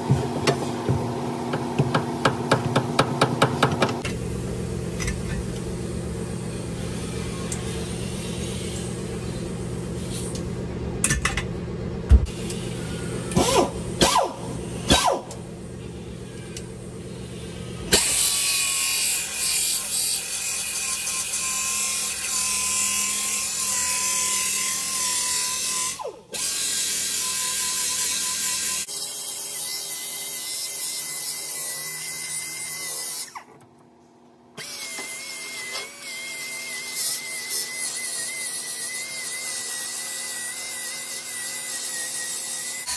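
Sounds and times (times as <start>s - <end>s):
steady hum: 0.0s - 17.9s
sharp knocks: 0.1s - 4.0s
pneumatic saw cutting steel: 6.8s - 10.4s, 12.3s - 15.4s, 17.3s - 33.6s, 34.6s - 42.9s.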